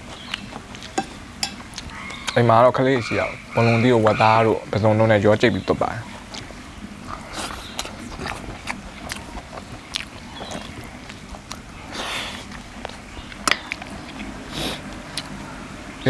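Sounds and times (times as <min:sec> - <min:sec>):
noisy crunch: 0:00.0 - 0:02.4, 0:03.9 - 0:15.8
person chewing food: 0:00.0 - 0:02.4, 0:06.1 - 0:15.4
mouth clicks and smacks: 0:06.3 - 0:14.3.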